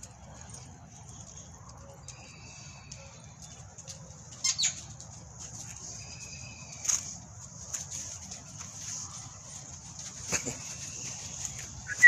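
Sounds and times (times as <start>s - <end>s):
puppies squealing: 4.4s - 4.8s.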